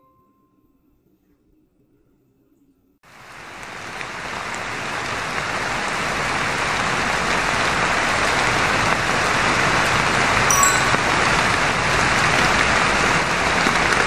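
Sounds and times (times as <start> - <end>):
heavy rain falling: 3.1 - 10.5, 11.1 - 14.0.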